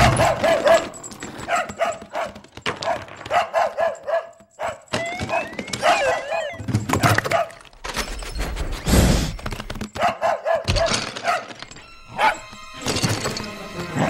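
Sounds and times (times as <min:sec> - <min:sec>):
dog barking and yipping: 0:00.0 - 0:07.8, 0:09.8 - 0:12.6.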